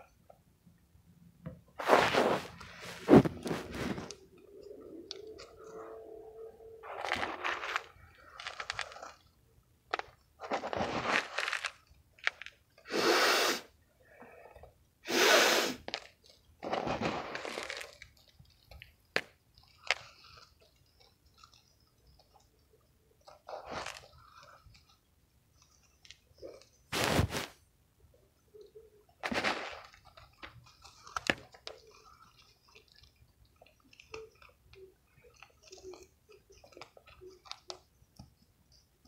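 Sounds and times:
mothballs crunching: 1.8 - 13.0, 15.1 - 22.6, 29.2 - 33.1.

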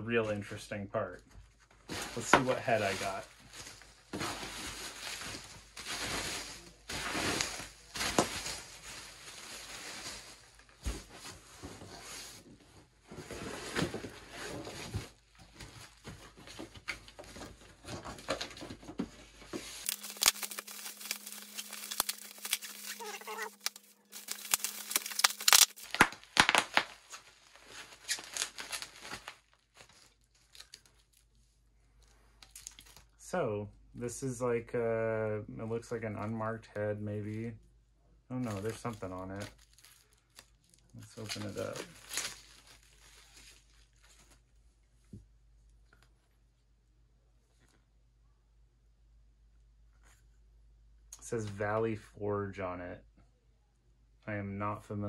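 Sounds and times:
bubble wrap crinkling and tearing: 1.9 - 12.3, 19.4 - 31.4, 32.0 - 33.2, 38.4 - 44.6
sharp crackles: 19.8 - 29.4.

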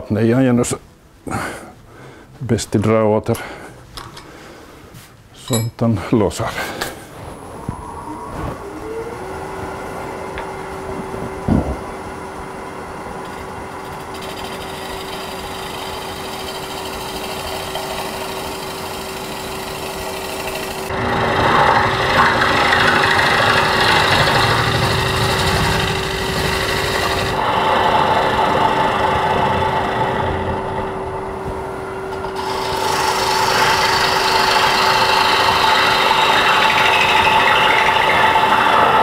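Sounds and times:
lathe motor hum: 7.3 - 39.0
gouge cutting wood: 13.8 - 31.0, 32.2 - 39.0.

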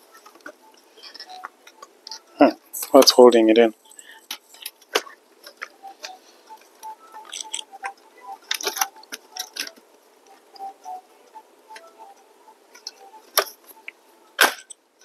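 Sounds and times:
laptop parts clicking and scraping: 0.1 - 2.4, 3.8 - 10.7.

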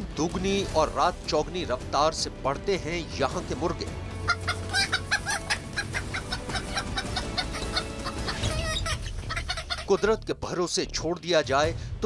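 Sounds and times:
chickens clucking: 4.2 - 9.9.

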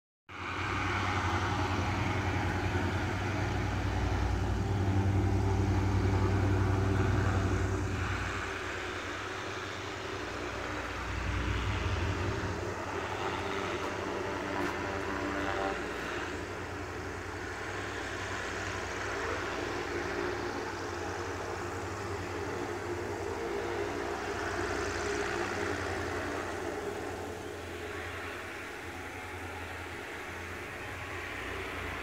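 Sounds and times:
propeller engines droning: 0.3 - 32.0.

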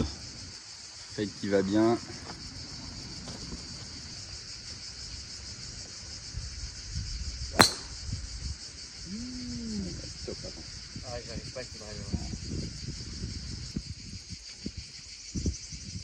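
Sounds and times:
insect chorus: 0.0 - 16.0
golf club striking ball: 7.6 - 8.0.

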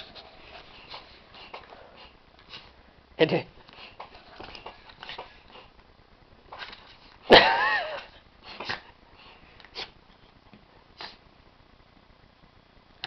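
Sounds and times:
dog sniffing and puffing: 0.0 - 2.8, 3.6 - 5.8.

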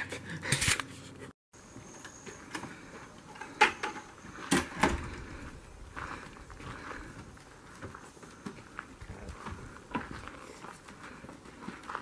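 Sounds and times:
flip-flop footsteps on wooden deck: 4.3 - 12.0.

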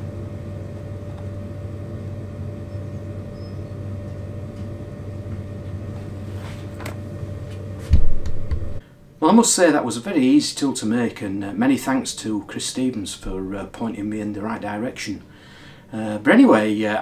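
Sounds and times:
low motor hum: 0.0 - 8.8
sharp thump: 7.9 - 8.7.

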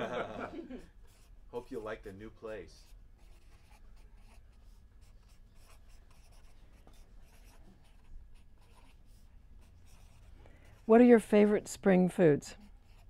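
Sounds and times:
pen scratching on paper: 1.0 - 1.9, 2.7 - 11.7, 12.5 - 13.0.

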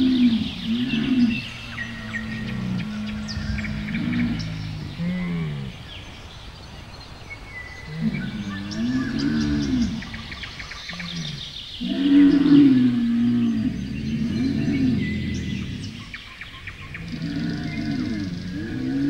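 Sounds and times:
camel calling: 0.0 - 5.8
birds chirping faintly: 0.0 - 19.0.

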